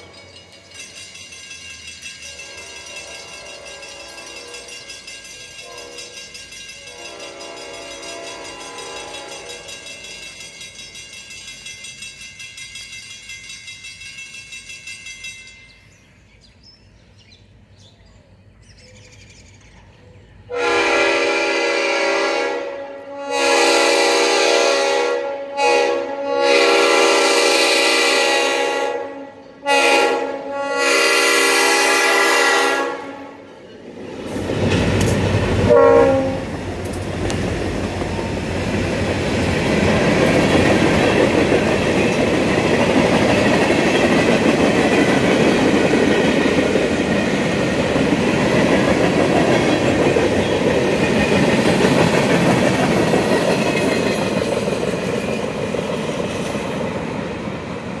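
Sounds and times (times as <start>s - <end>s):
train rumbling: 0.0s - 58.0s
locomotive air horn blasts: 2.3s - 4.7s, 5.6s - 6.2s, 6.8s - 9.7s, 20.5s - 33.5s, 35.6s - 36.6s.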